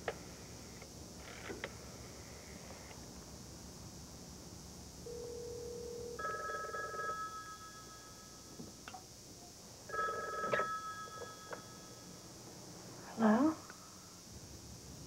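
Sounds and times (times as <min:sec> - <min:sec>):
telephone bell ringing: 0:05.1 - 0:08.5, 0:09.9 - 0:12.2.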